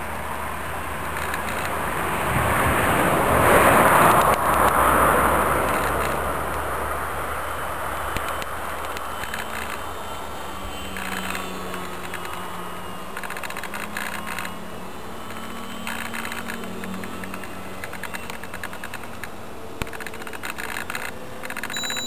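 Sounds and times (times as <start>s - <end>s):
model aeroplane motor drone: 0.0s - 22.0s.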